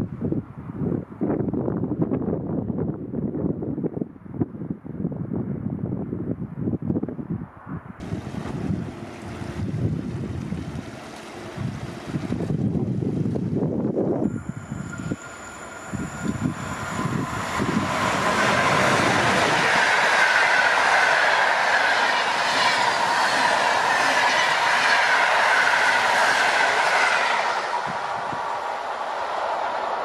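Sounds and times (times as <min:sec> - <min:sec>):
train wheel and rail noise: 0:08.0 - 0:30.0.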